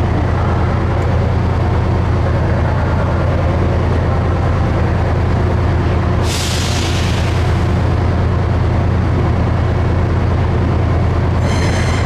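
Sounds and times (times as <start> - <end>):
train idling rumble: 0.0 - 12.0
air hissing burst: 6.2 - 7.8.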